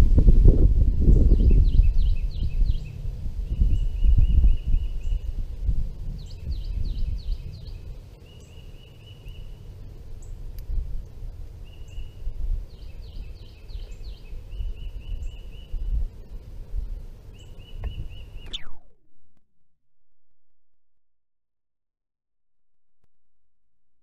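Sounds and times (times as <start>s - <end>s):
bird singing whistles: 1.3s - 5.3s, 12.8s - 15.9s, 17.3s - 19.0s.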